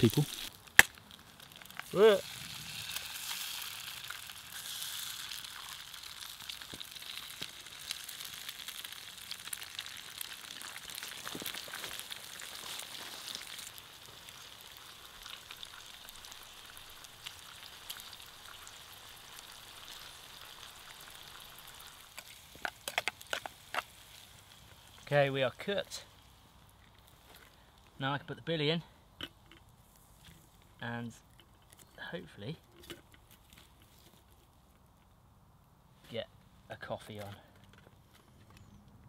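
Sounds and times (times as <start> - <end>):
fine crackles: 0.0 - 18.3
egg and sausage sizzling: 0.0 - 27.9.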